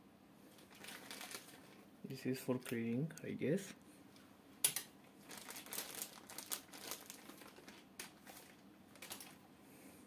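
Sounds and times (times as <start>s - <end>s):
plastic bag crinkling: 0.6s - 1.8s, 5.2s - 9.4s.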